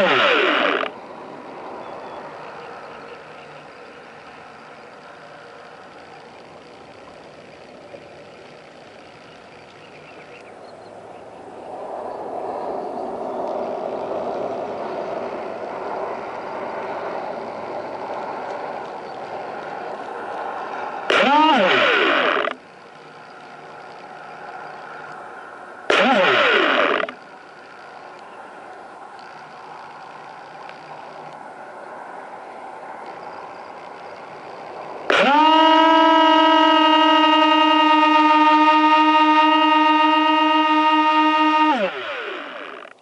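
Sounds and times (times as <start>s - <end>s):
loud pitched sound: 0.0s - 1.0s, 21.1s - 22.6s, 25.9s - 27.2s, 35.1s - 42.9s
muffled underwater motor and water: 0.0s - 11.6s, 13.7s - 31.7s.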